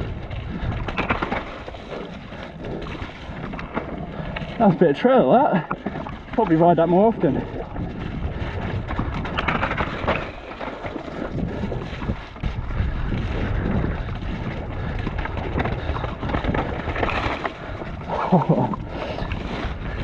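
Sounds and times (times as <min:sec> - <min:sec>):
bike knocks and rattles: 0:00.0 - 0:20.0
tyres rushing on dirt: 0:00.0 - 0:20.0
wind buffeting microphone: 0:00.0 - 0:20.0.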